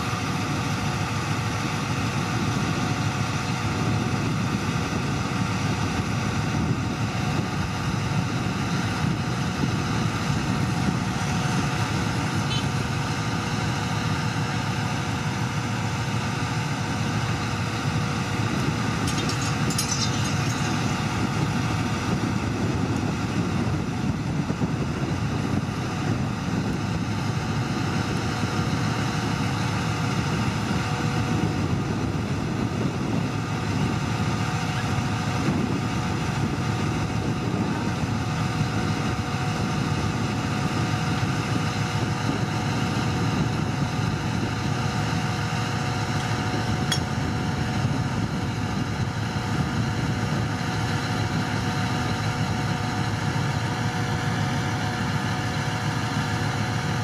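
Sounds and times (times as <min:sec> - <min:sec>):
diesel engine running: 0:00.0 - 0:57.0
metallic rattle: 0:19.0 - 0:21.4.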